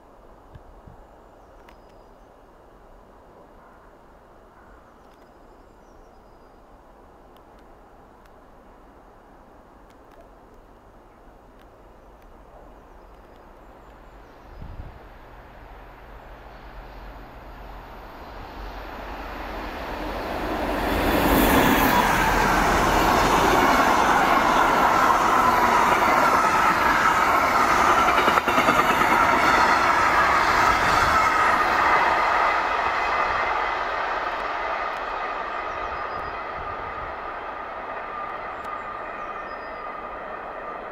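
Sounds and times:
freight train passing: 11.4s - 40.9s.

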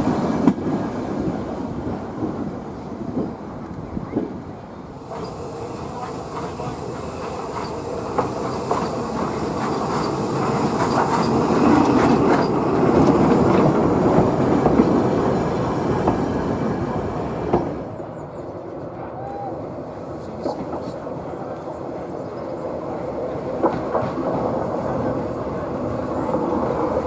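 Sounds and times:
train rumble: 0.0s - 27.0s
train wheels clicking over rail joints: 5.0s - 18.0s, 23.2s - 25.2s.

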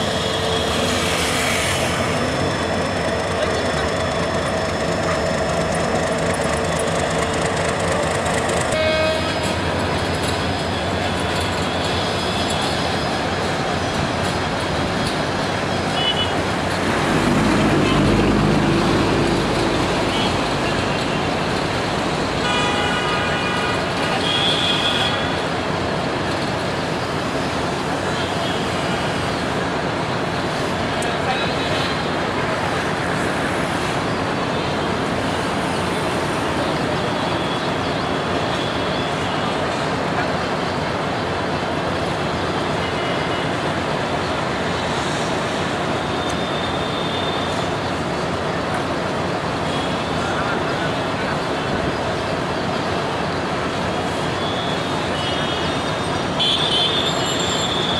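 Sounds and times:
locomotive engine rumble: 0.0s - 22.5s
diesel locomotive engine drone: 0.0s - 57.9s
traffic noise: 0.0s - 57.9s
locomotive horn: 8.4s - 10.0s, 22.3s - 25.4s, 54.4s - 57.9s.

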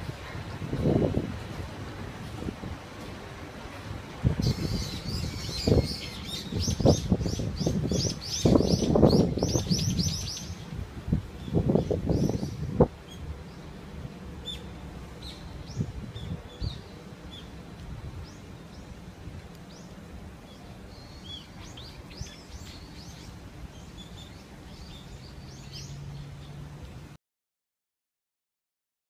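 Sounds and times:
small birds chirping: 4.4s - 10.6s, 19.6s - 26.6s.

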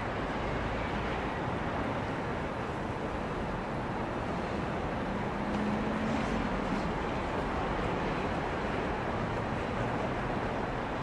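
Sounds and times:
train rumbling past: 0.0s - 11.0s.

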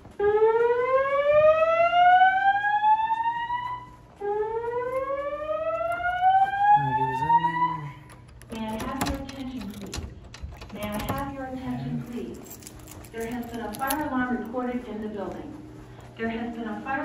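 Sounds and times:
fire alarm whoop tone: 0.2s - 8.1s.

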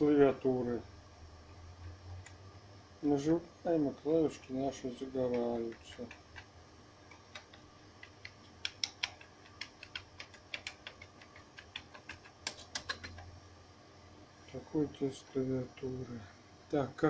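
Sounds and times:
keyboard keys clicking: 7.1s - 13.2s.

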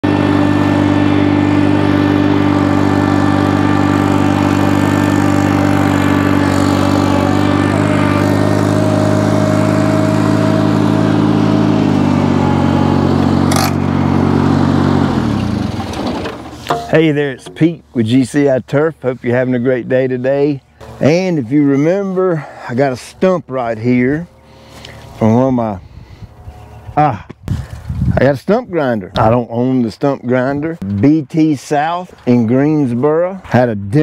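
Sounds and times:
tractor engine running: 0.0s - 25.6s.

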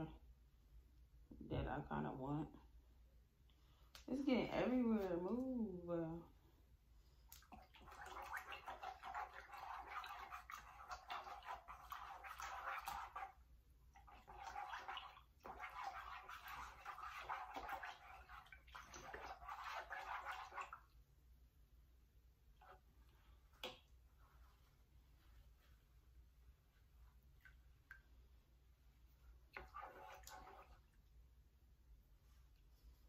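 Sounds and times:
water sloshing in metal pot: 7.2s - 21.0s, 29.3s - 31.1s.

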